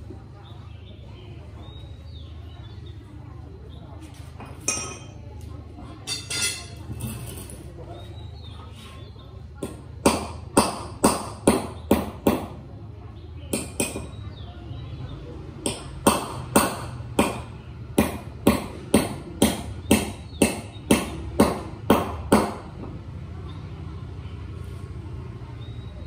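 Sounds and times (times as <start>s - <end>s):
hammer striking metal: 6.1s - 6.8s, 13.5s - 14.1s, 15.6s - 22.7s.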